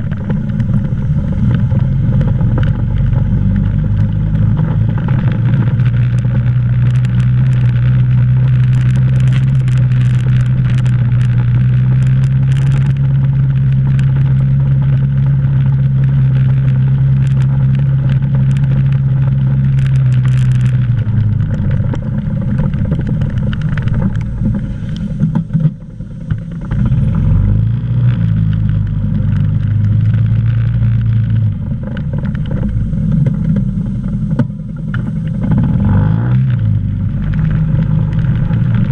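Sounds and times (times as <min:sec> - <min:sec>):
clicks and rattles: 0:00.0 - 0:27.0
quad engine running: 0:00.0 - 0:38.9.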